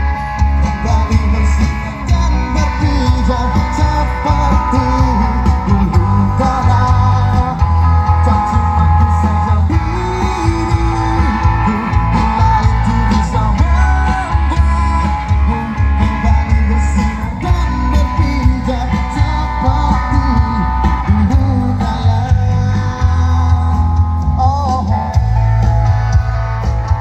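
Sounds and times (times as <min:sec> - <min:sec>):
amplified music with singing: 0:00.0 - 0:27.0.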